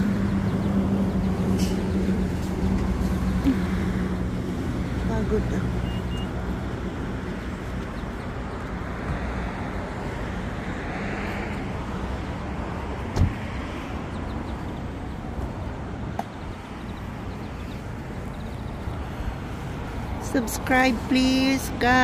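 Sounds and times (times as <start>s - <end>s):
outdoor rumbling background noise: 0.0s - 22.0s
sharp thump: 13.1s - 13.4s.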